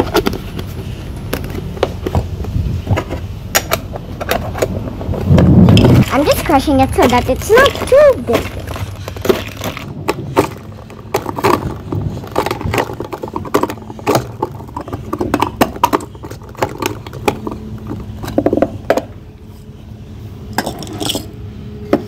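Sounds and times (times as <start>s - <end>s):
nut chopper crushing nuts: 4.6s - 19.2s.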